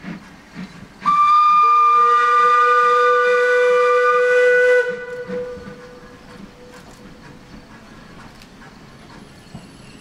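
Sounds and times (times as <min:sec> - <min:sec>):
low steam whistle: 0:01.0 - 0:07.1
high steam whistle: 0:01.0 - 0:07.4.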